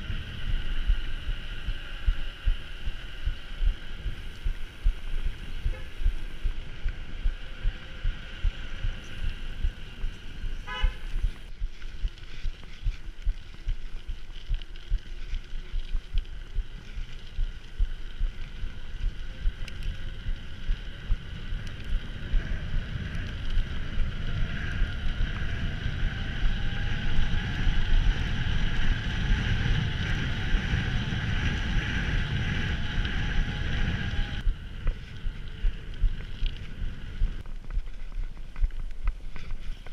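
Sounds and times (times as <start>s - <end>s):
steady hum: 0.0s - 12.6s
mountain bike rumbling: 0.0s - 39.9s.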